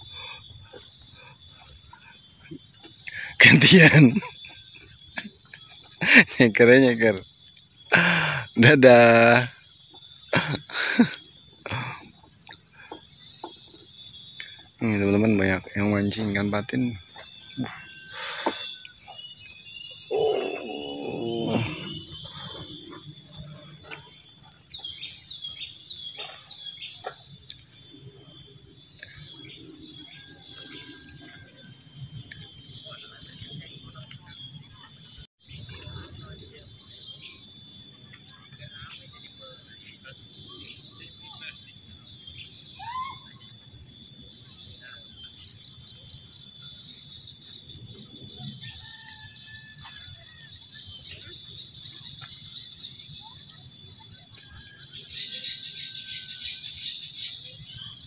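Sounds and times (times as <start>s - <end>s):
crickets trilling: 0.0s - 58.0s
quick falling calls: 20.1s - 22.6s.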